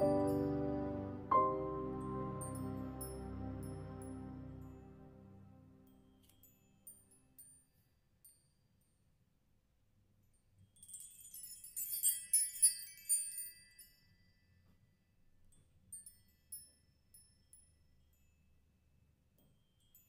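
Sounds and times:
high tinkling chimes: 0.0s - 5.1s, 10.6s - 15.0s, 15.6s - 18.6s.

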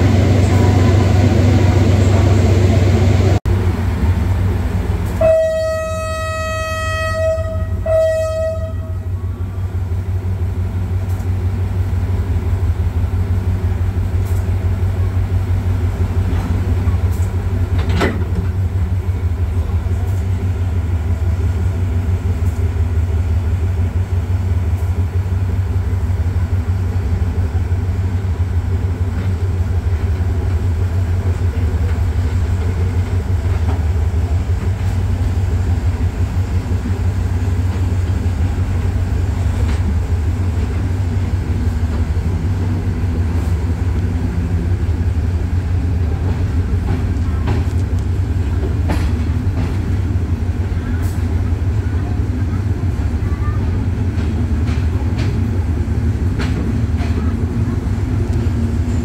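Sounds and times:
locomotive horn blasts: 5.2s - 9.2s.

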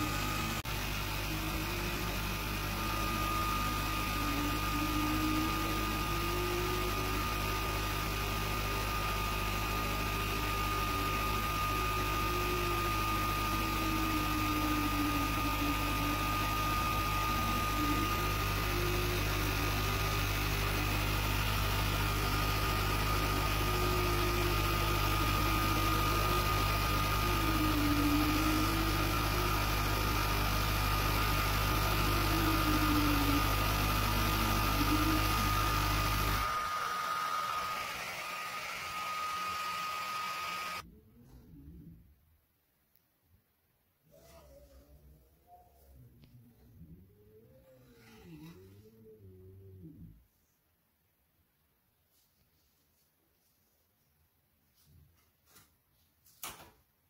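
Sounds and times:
stepper motors whirring: 0.0s - 40.8s
laser cutter hum and whine: 0.0s - 40.9s.

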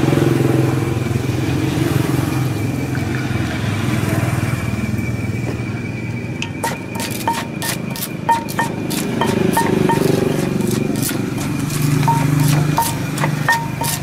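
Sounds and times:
engine drone: 0.0s - 14.0s
wooden pestle striking clay mortar: 6.4s - 14.0s.

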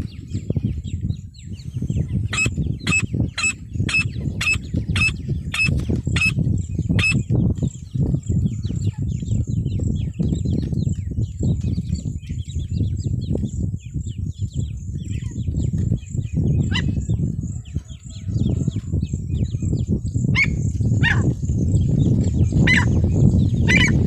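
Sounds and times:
francolin calling: 2.3s - 6.4s.

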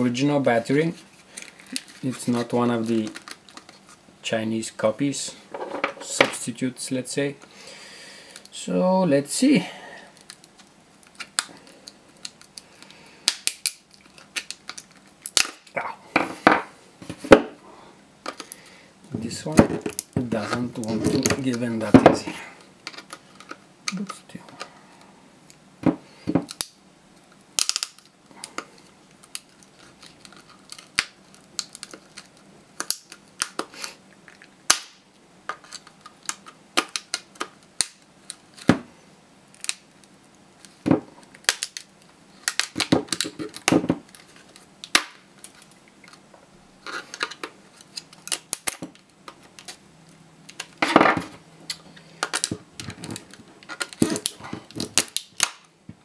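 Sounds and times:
plastic case cracking and snapping: 13.2s - 15.7s, 27.5s - 33.7s, 34.7s - 38.8s, 40.6s - 45.8s, 47.1s - 49.8s, 50.5s - 55.7s.

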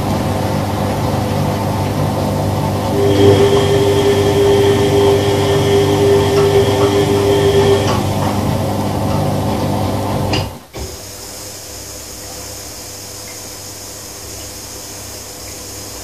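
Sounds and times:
washing machine humming with whine: 0.0s - 16.0s.

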